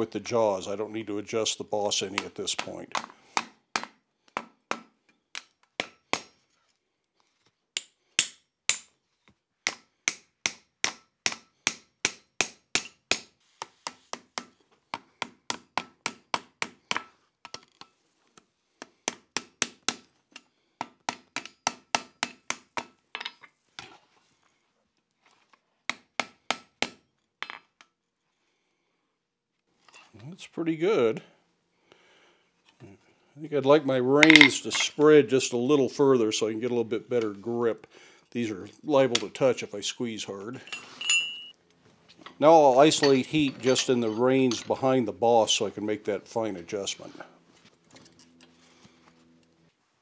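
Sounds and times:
hammer striking metal on anvil: 9.7 - 13.3.

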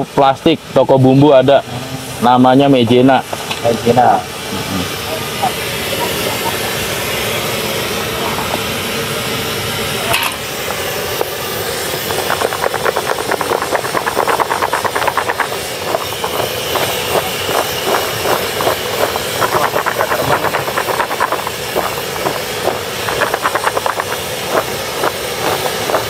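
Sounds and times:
steady hiss: 0.0 - 26.0
potato strips rattling in plastic basin: 12.2 - 26.0.

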